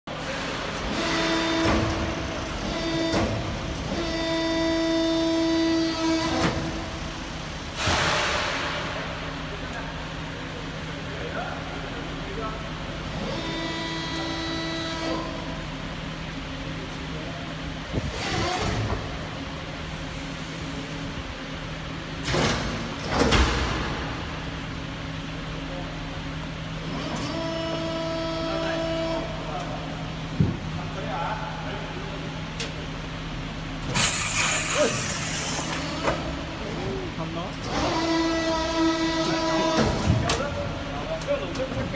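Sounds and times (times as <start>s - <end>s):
hydraulic press whine: 0.1s - 9.5s, 12.8s - 17.1s, 17.8s - 25.8s, 26.5s - 30.8s, 33.7s - 41.9s
short hydraulic hisses: 7.8s - 8.7s, 33.9s - 35.8s.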